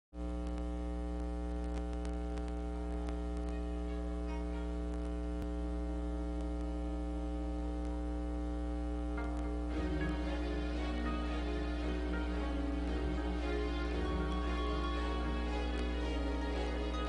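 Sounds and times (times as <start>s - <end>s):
electrical mains hum: 0.2s - 17.0s
faint clicks: 0.4s - 3.6s, 6.4s - 6.8s.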